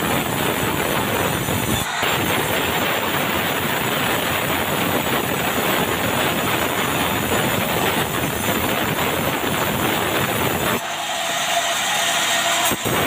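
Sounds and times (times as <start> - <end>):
band saw cutting timber: 0.2 - 13.0.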